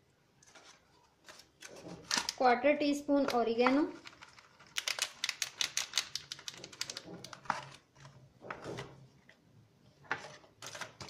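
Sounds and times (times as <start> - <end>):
herb packet clicks and crinkles: 3.6 - 8.1.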